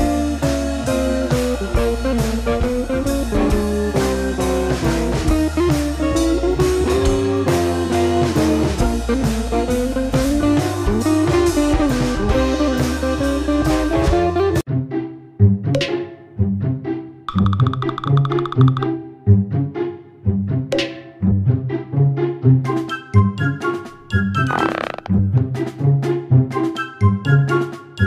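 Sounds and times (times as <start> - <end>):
blues guitar tune: 0.0 - 14.6.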